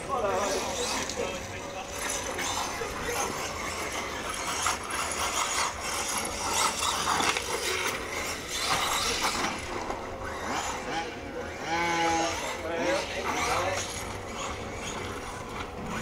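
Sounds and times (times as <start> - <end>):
rc car drivetrain gear noise: 0.0 - 16.0.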